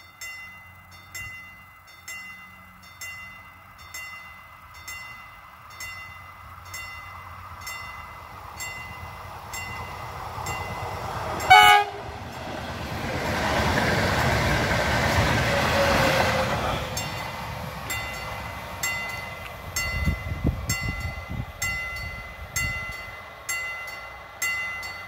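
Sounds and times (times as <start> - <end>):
train passing rumble: 0.0 - 25.0
train horn blast: 11.4 - 12.2, 15.4 - 17.0.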